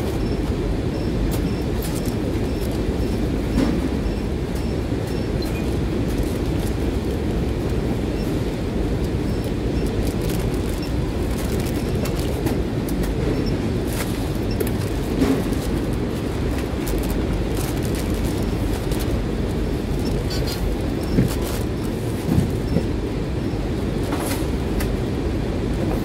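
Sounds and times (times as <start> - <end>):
conveyor machinery rumbling: 0.0 - 26.0
mailers rustling: 5.7 - 23.0.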